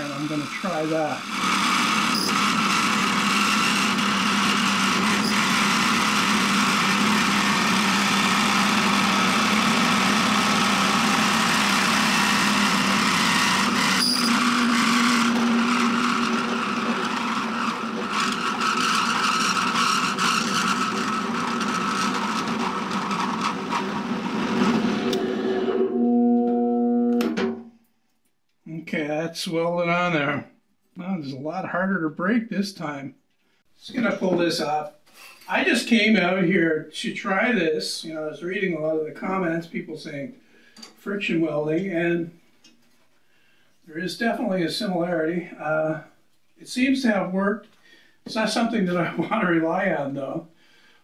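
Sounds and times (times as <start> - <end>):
grinding friction noise: 0.0 - 27.2
drill press motor whine: 0.1 - 27.5.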